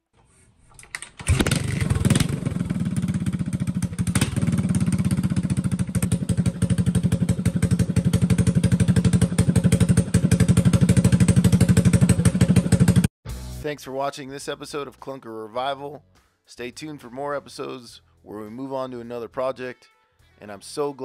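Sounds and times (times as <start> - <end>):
motorcycle engine idling: 1.3 - 13.1.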